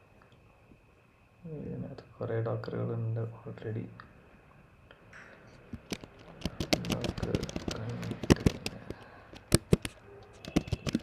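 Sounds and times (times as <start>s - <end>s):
computer keyboard typing: 5.8s - 11.0s.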